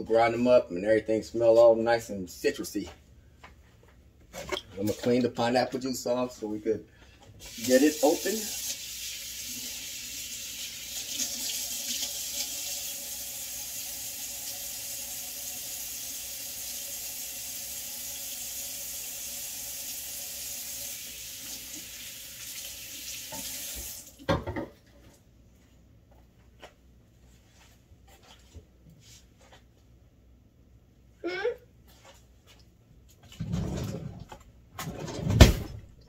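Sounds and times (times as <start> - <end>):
faucet running into sink: 7.5 - 24.2.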